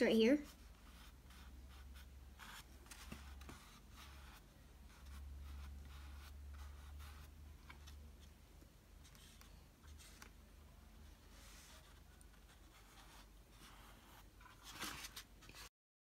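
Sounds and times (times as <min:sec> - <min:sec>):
paintbrush strokes on canvas: 0:11.0 - 0:15.7.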